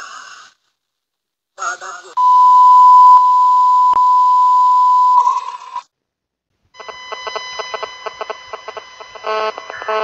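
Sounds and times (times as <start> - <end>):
loud electronic beep tone: 2.2 - 5.8.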